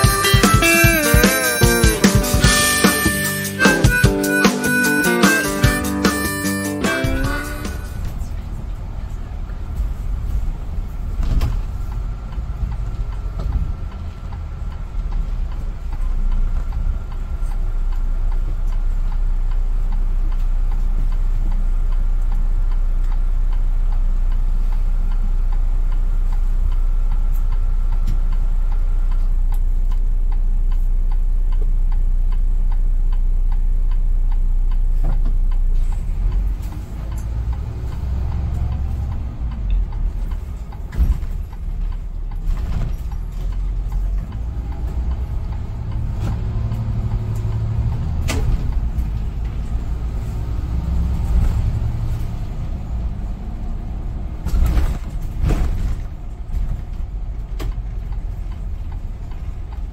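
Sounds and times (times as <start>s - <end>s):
bus engine idling: 0.0s - 59.9s
faint regular ticking: 11.8s - 42.5s, 57.3s - 59.9s.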